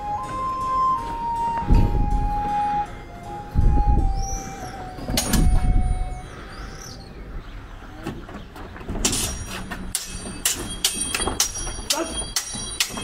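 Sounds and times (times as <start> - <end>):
footsteps on wooden bridge: 7.8 - 10.4
swords knocking and clacking: 9.0 - 13.0.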